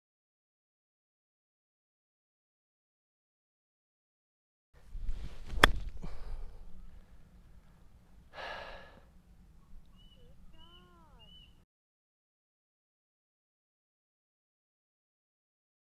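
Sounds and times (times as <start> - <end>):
outdoor ambience: 4.8 - 11.6
golf club striking ball: 5.1 - 7.2
person sighing: 5.9 - 6.6, 8.3 - 9.1.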